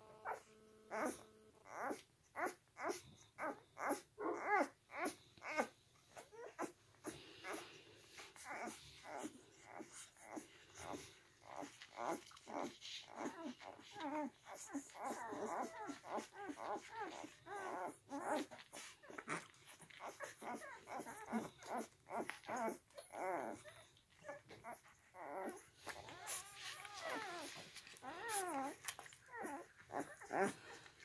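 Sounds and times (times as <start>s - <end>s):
puppies whimpering and squeaking: 0.2s - 31.0s
puppies suckling clicks: 9.8s - 25.1s, 25.8s - 31.0s.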